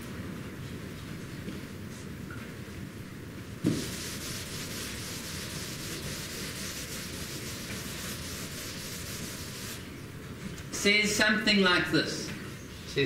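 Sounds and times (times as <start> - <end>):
eraser scrubbing a chalkboard: 3.7 - 9.9.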